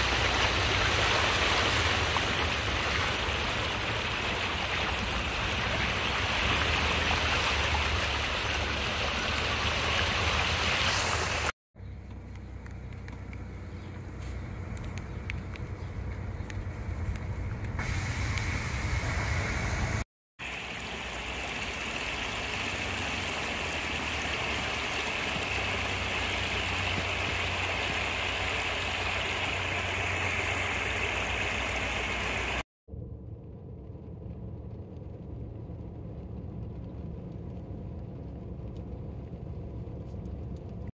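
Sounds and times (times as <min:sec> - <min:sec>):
floodwater rushing over concrete edge: 0:00.0 - 0:11.5, 0:20.4 - 0:32.6
rain and dripping patter: 0:00.0 - 0:18.5, 0:20.4 - 0:32.6, 0:33.2 - 0:40.9
water flowing with low rumble: 0:00.0 - 0:40.9.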